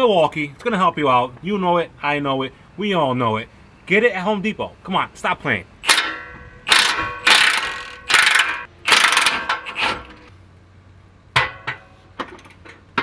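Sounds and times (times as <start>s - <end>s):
power tool bursts: 6.7s - 10.1s.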